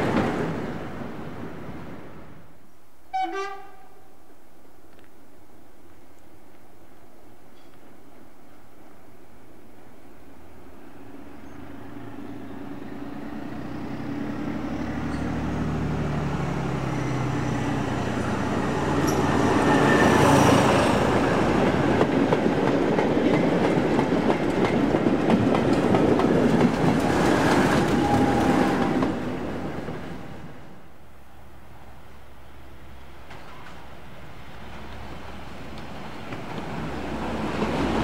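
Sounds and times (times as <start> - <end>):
diesel train engine: 9.8 - 38.0
train wheels clicking over rail joints: 21.6 - 29.2.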